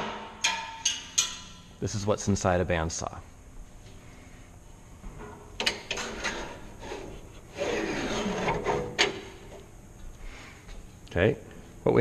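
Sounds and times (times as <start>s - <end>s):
door scraping rub: 5.9s - 9.4s.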